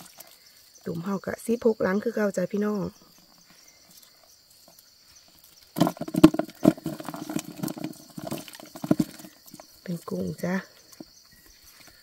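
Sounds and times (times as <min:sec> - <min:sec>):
water sloshing: 0:04.0 - 0:10.0.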